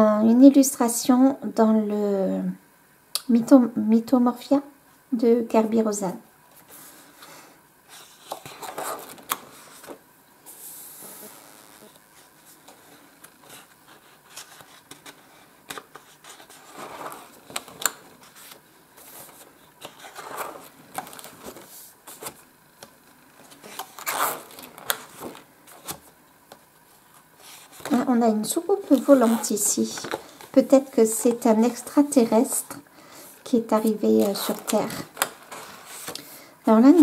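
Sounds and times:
book pages turning: 7.9s - 32.4s, 33.7s - 36.3s.

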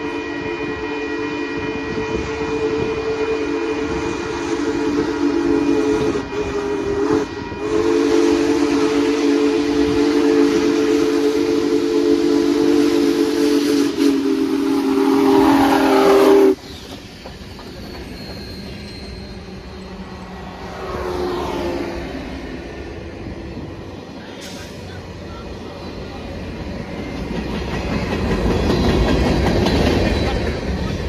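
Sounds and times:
steam locomotive chime whistle: 0.0s - 20.6s
train rolling: 0.0s - 31.0s.

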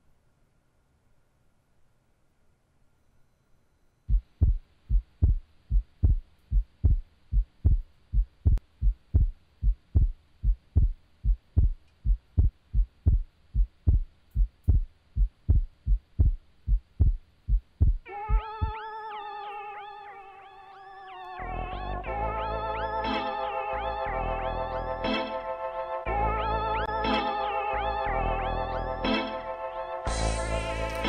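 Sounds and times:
heartbeat thumps: 4.1s - 18.8s.

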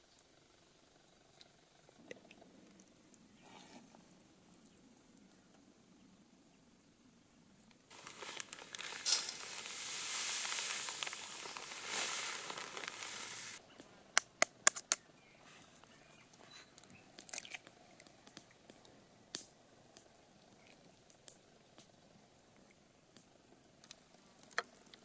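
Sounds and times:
salt pouring onto metal tray: 7.9s - 13.6s
sharp clicks and taps: 14.2s - 15.0s
eggshell cracking: 17.2s - 18.5s.

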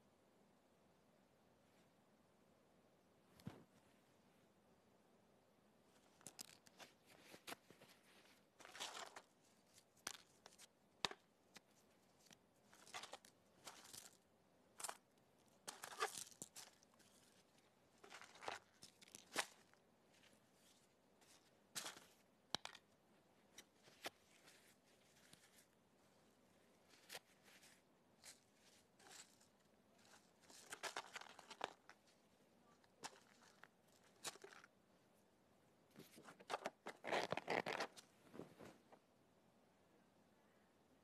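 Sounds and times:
paper crinkling: 6.1s - 10.7s, 11.5s - 14.2s, 14.8s - 22.8s, 26.8s - 34.7s.

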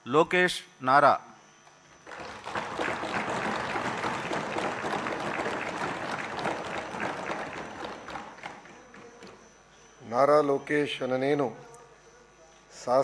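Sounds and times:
crowd applauding: 2.0s - 9.4s.

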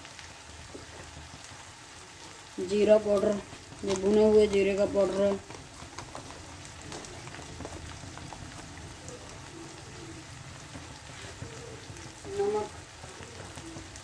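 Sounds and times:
vegetables sizzling in oil: 0.0s - 14.0s.

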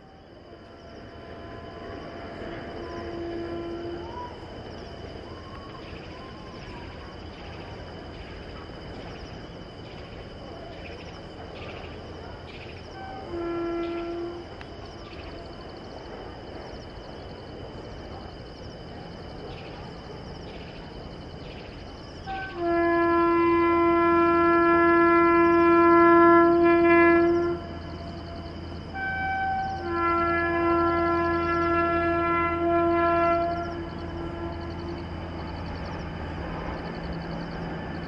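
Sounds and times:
distant rail noise: 0.0s - 38.0s
locomotive air horn blast: 2.8s - 4.2s, 13.0s - 14.6s, 22.2s - 35.1s.

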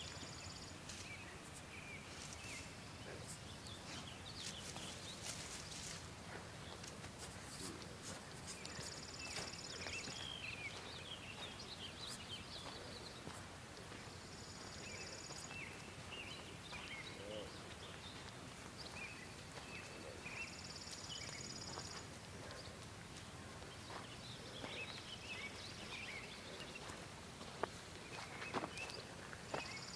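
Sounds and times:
birds chirping: 0.0s - 29.9s
footsteps on dirt path: 2.1s - 29.9s.

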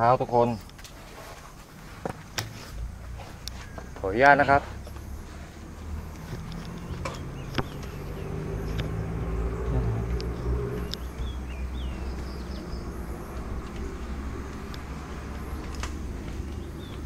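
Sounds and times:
distant engine humming: 1.8s - 17.0s
light clicks: 10.1s - 11.1s.

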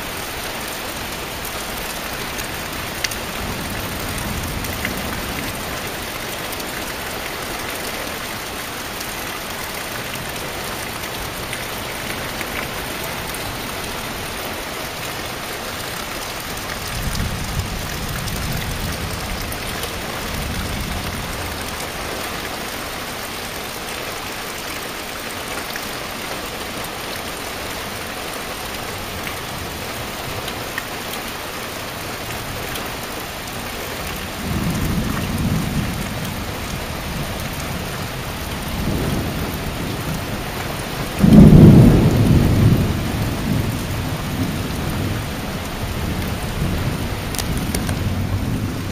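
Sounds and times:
heavy rain on foliage: 0.0s - 48.9s.

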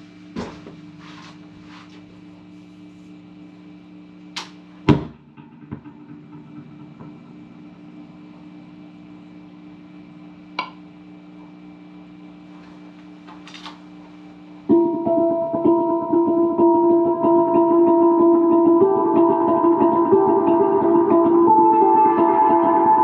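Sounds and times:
low drone: 5.2s - 11.3s
handpan ringing notes: 5.4s - 9.1s, 14.7s - 23.0s.

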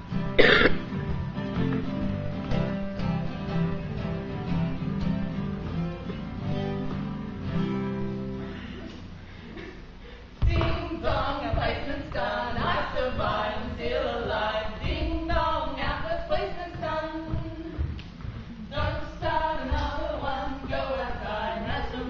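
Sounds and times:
group of voices singing: 10.4s - 17.8s, 18.6s - 22.0s.

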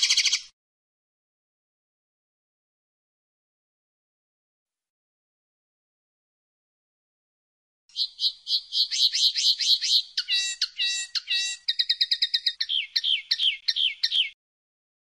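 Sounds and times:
linnet singing: 0.0s - 0.5s, 7.9s - 14.4s.

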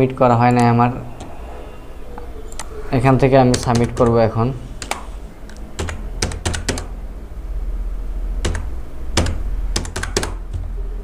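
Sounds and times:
low steady hum: 0.0s - 11.0s
keyboard keys typing: 3.5s - 7.0s, 8.4s - 10.8s.

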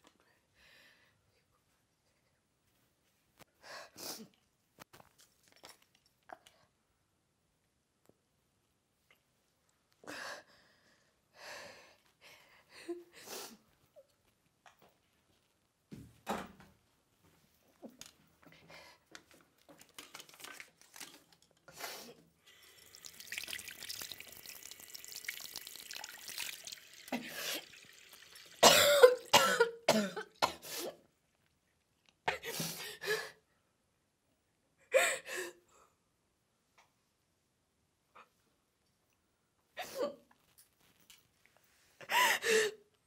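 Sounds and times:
woman coughing: 28.6s - 31.0s.

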